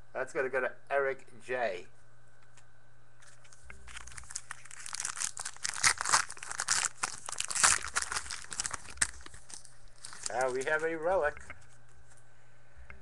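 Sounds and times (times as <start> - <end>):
foil wrapper tearing and crinkling: 3.9 - 11.1.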